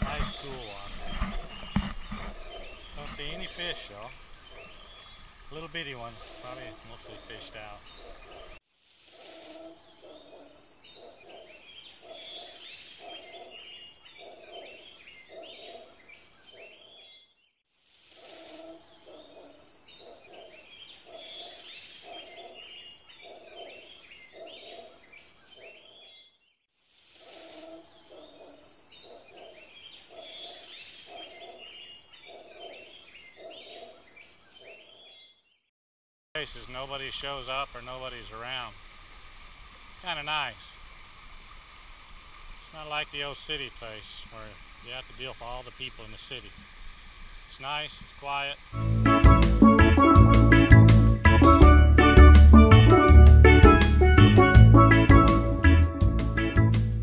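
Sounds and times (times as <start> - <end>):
birds chirping and calling: 0.0 - 8.6, 9.2 - 17.4, 18.1 - 26.4, 27.3 - 35.5.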